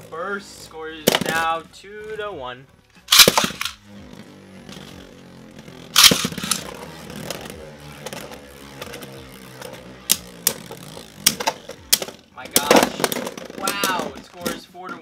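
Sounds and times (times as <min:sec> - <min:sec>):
spinning tops whirring: 0:03.0 - 0:15.0
spinning tops clashing: 0:03.1 - 0:03.8, 0:05.9 - 0:07.4.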